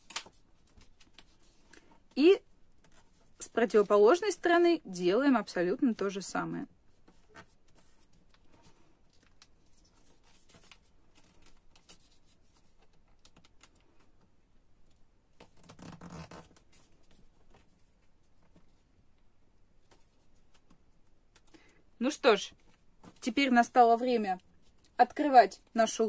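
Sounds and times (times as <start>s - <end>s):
paper rustling and crinkling: 0.0s - 2.1s, 6.9s - 14.2s.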